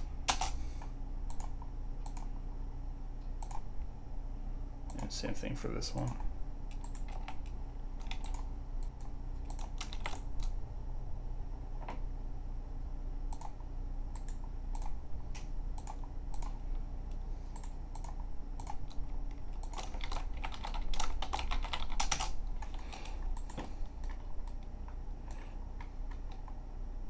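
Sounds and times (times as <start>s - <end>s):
low steady hum: 0.0s - 27.0s
computer keyboard keys clicking: 1.3s - 2.3s, 6.0s - 10.5s, 15.8s - 16.6s, 17.6s - 24.6s.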